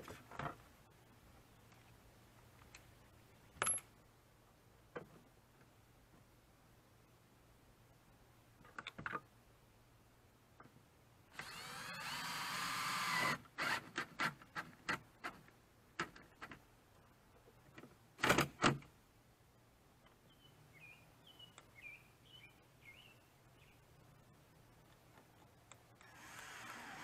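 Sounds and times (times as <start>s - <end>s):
cordless drill driving screws: 11.3s - 14.4s, 26.0s - 27.0s.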